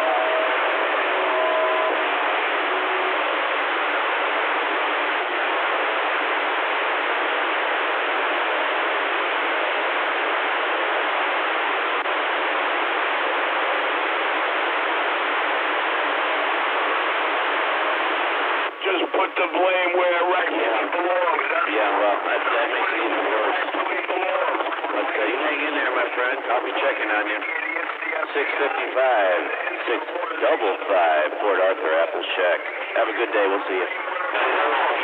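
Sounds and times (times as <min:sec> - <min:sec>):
faint radio tones: 0:00.0 - 0:35.0
radio static hiss: 0:00.0 - 0:35.0.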